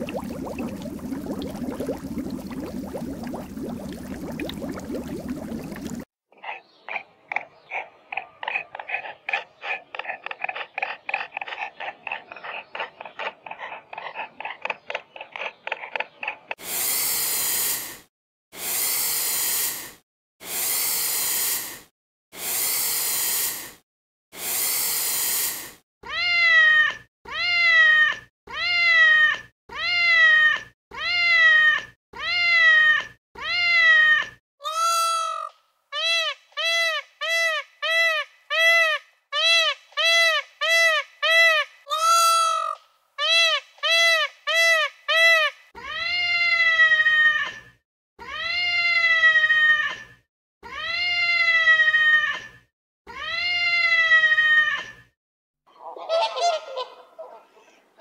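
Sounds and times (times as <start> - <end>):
animal crying in high calls: 26.1 - 50.1.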